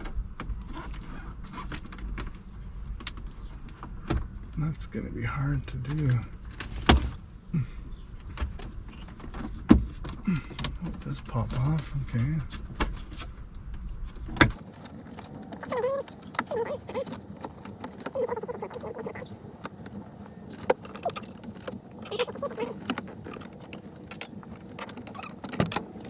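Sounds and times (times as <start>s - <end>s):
plastic panel clicks and creaks: 8.2s - 26.0s.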